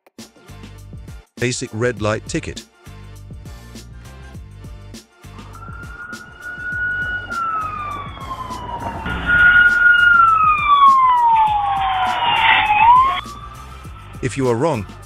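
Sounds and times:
higher siren tone: 5.4 - 15.0
police siren wailing: 5.4 - 15.0.

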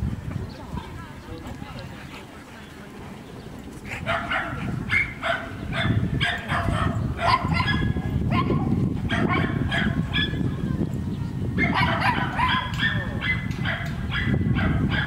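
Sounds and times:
dog barking: 4.0 - 10.4, 11.6 - 15.0.

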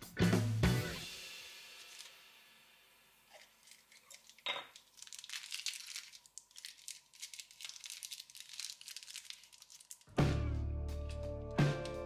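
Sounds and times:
crinkling and rustling: 3.3 - 10.1.

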